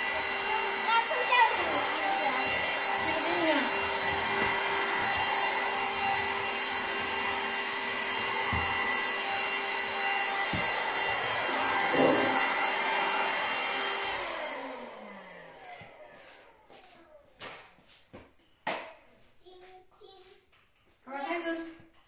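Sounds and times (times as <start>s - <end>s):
vacuum cleaner motor whine: 0.0s - 16.8s.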